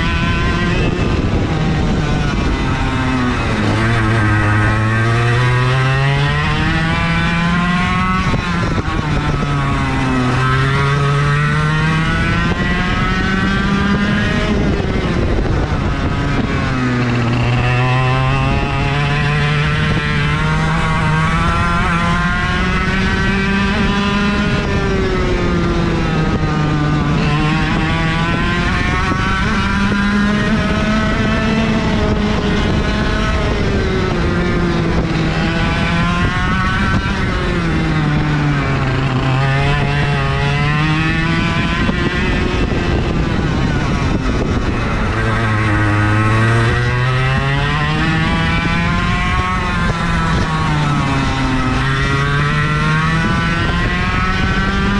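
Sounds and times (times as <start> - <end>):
kart engine revving: 0.0 - 54.9.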